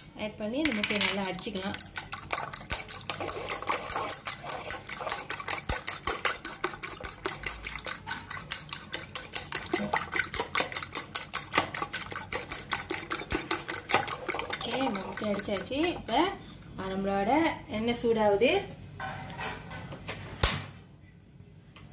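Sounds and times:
fork beating eggs in bowl: 0:00.7 - 0:17.1.

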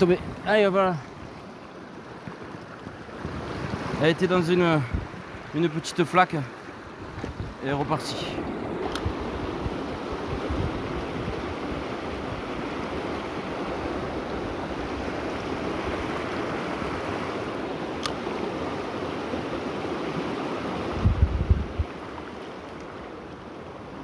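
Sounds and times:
river rushing over stones: 0:00.0 - 0:24.0.

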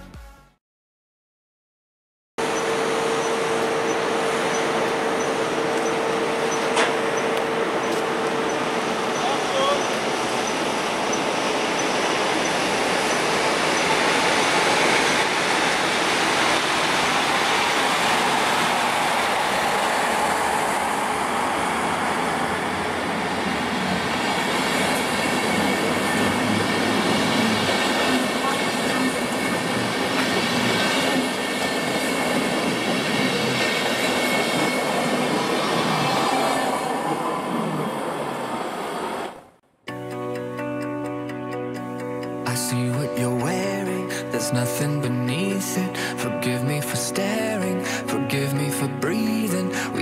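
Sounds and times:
high wheel squealing: 0:02.4 - 0:39.4
train wheels rumbling on rails: 0:02.4 - 0:39.4.

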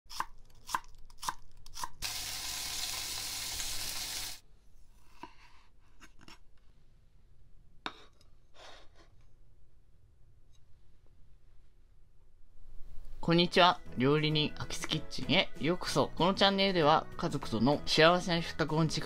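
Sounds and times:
fish sizzling in frying pan: 0:02.0 - 0:04.4.

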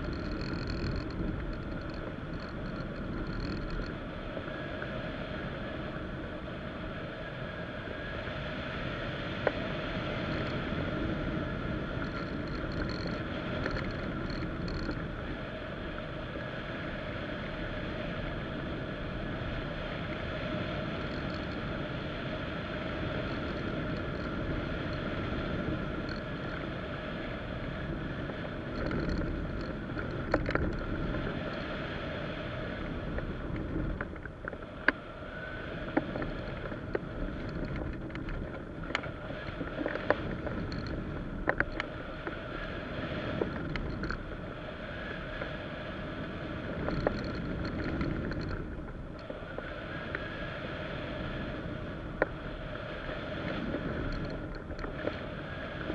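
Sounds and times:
sharp ticks and rattles: 0:00.0 - 0:04.5, 0:10.2 - 0:10.7, 0:11.7 - 0:16.5, 0:20.9 - 0:21.8, 0:22.8 - 0:31.7, 0:35.9 - 0:42.4, 0:43.3 - 0:44.4, 0:46.7 - 0:49.6, 0:53.4 - 0:55.2
steady hum: 0:00.0 - 0:55.9
wind rushing over camera: 0:00.0 - 0:55.9.

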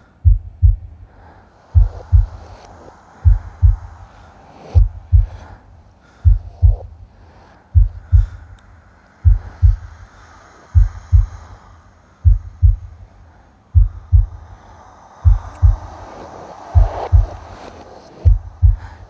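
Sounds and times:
faint hiss: 0:00.0 - 0:19.0
heartbeat double thump: 0:00.2 - 0:00.9, 0:01.8 - 0:02.4, 0:03.2 - 0:03.8, 0:04.8 - 0:05.4, 0:06.3 - 0:06.9, 0:07.8 - 0:08.4, 0:09.3 - 0:09.8, 0:12.2 - 0:12.8, 0:13.8 - 0:14.3, 0:15.3 - 0:15.8, 0:16.8 - 0:17.4, 0:18.3 - 0:18.9.

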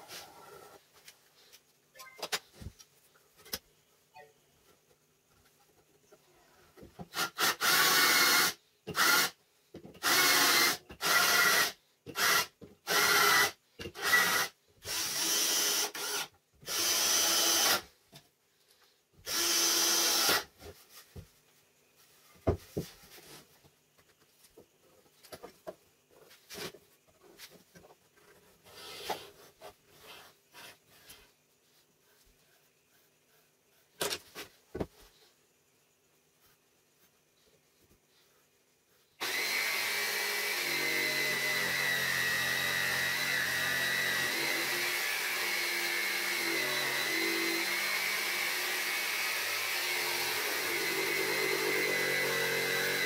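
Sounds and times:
cordless drill driving into wood: 0:07.1 - 0:09.4, 0:10.0 - 0:17.8, 0:19.2 - 0:20.5, 0:39.2 - 0:53.0
pencil scratching: 0:28.3 - 0:31.3.

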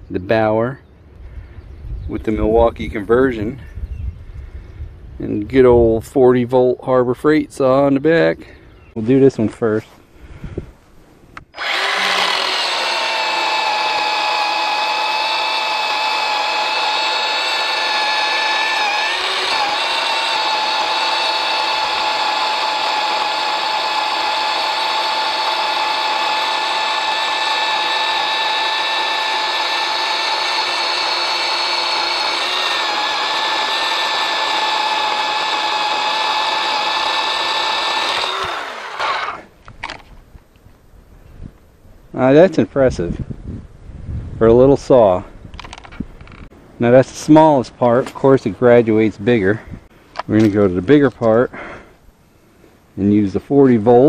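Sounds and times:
battery chainsaw cutting log: 0:11.4 - 0:39.6.

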